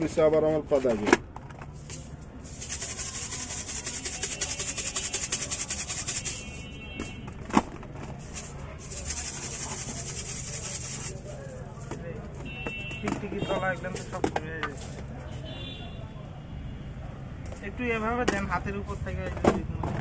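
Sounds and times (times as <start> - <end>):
grains rattling in shaker bottle: 1.7 - 7.2, 8.1 - 11.8.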